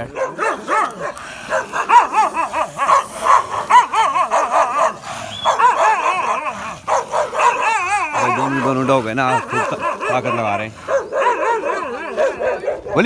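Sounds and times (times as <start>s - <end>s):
dogs barking and whining: 0.0s - 13.0s.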